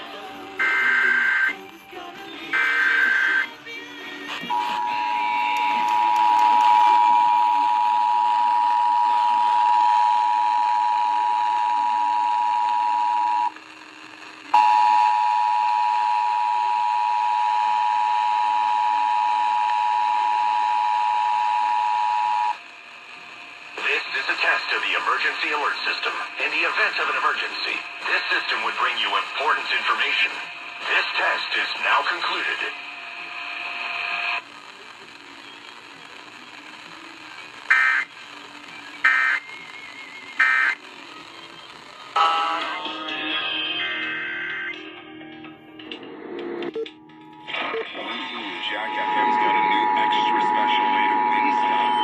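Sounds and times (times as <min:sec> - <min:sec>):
two-tone alert signal: 0:46.7 - 0:52.0.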